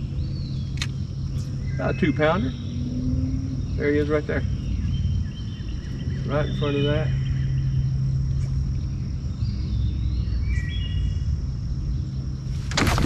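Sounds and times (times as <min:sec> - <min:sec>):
bird chirping: 0:00.0 - 0:13.0
insect drone: 0:00.0 - 0:13.0
low rumble: 0:00.0 - 0:13.0.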